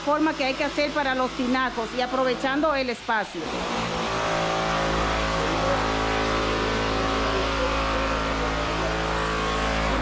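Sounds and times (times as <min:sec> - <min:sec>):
motor humming: 0:03.4 - 0:10.0.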